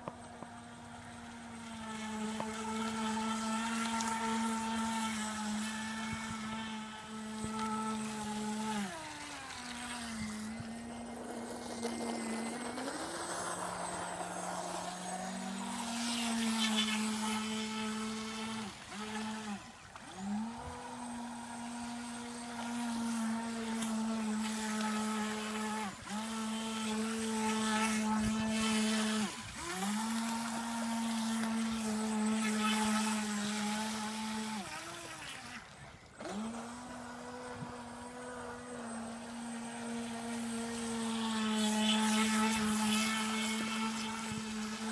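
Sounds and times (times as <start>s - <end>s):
electric motor whining: 0.0s - 44.9s.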